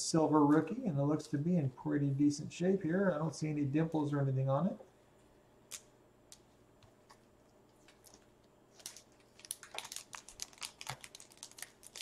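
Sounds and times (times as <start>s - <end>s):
foil wrapper crinkling: 7.8s - 12.0s.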